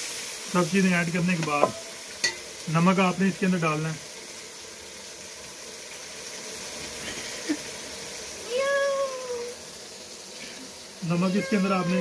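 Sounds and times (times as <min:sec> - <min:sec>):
masala sizzling in a pot: 0:00.0 - 0:12.0
cat meowing: 0:08.5 - 0:09.6, 0:11.3 - 0:12.0.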